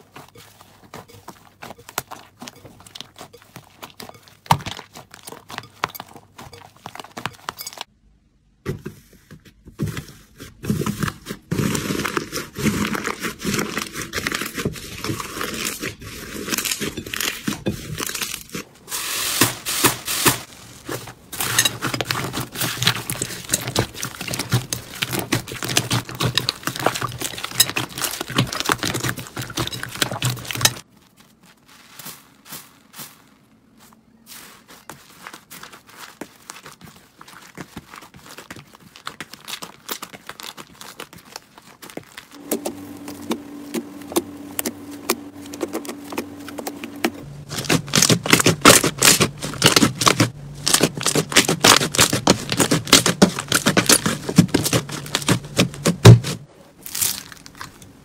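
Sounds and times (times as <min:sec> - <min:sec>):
slime crackling and popping: 0:37.3 - 0:43.4, 0:47.4 - 0:57.9.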